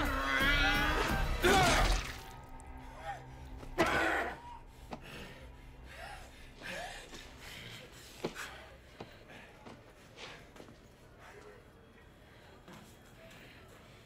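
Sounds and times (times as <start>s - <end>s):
low music drone: 0.0s - 8.1s.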